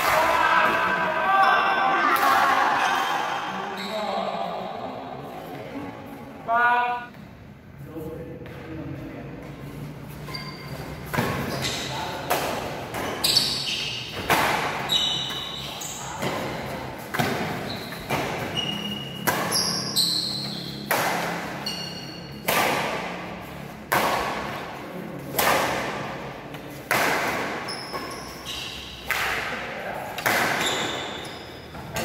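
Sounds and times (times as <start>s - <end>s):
shoes squeaking on court: 10.0s - 12.0s, 12.9s - 20.9s, 21.5s - 22.4s, 27.6s - 29.1s, 30.3s - 32.0s
badminton rackets hitting shuttlecock: 11.1s - 32.0s.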